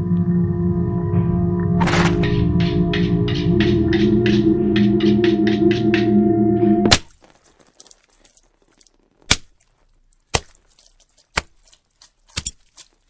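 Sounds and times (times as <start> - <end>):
sharp knocks: 1.8 - 7.0.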